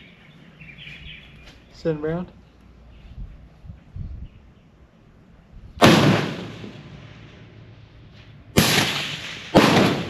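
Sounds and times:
rifle shots with echo: 5.8s - 7.4s, 8.6s - 10.0s.

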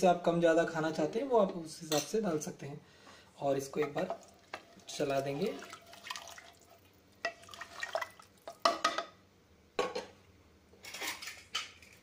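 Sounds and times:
liquid sloshing: 3.9s - 8.6s.

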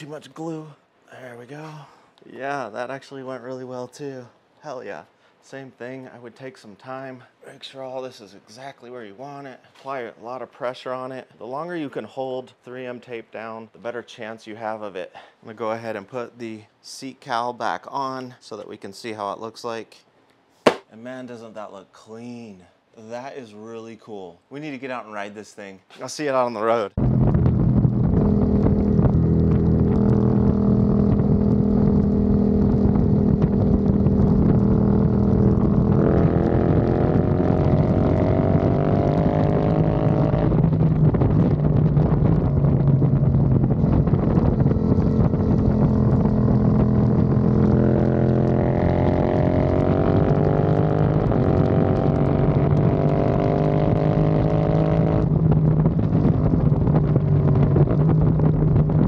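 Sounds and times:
motorcycle engine revving: 27.0s - 59.0s
wind rushing over microphone: 27.0s - 59.0s.

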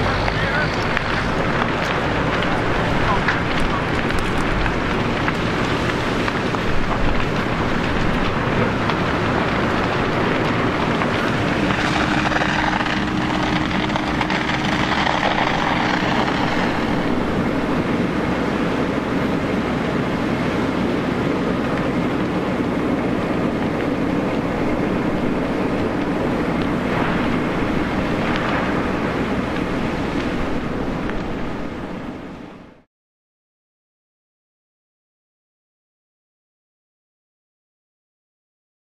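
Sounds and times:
loud engine roar: 0.0s - 30.8s
steady hum: 0.0s - 32.8s.

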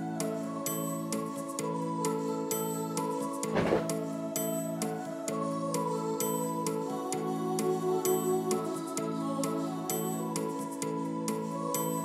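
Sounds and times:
soft new-age music: 0.0s - 12.0s.

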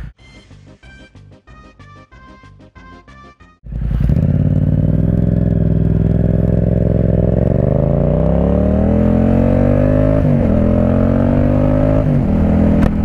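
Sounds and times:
motorcycle engine accelerating: 3.6s - 13.0s.

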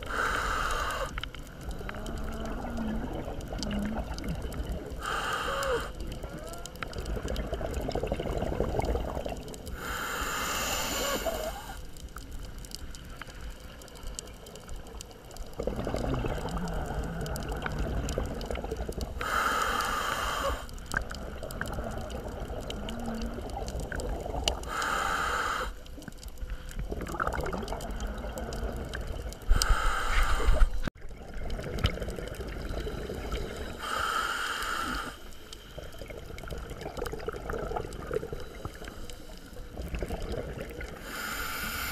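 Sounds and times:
hissing regulator inhalations: 0.0s - 2.4s, 5.0s - 6.4s, 9.7s - 11.9s, 19.2s - 20.9s, 24.7s - 25.9s, 29.5s - 30.9s, 32.9s - 35.8s, 41.0s - 41.9s
gurgling exhaled bubbles: 0.0s - 10.0s, 13.7s - 25.0s, 25.8s - 34.0s, 34.9s - 41.9s.

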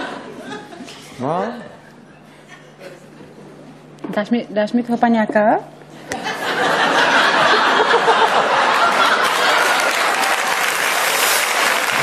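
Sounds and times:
audience laughing: 6.0s - 12.0s
audience clapping: 7.6s - 12.0s.

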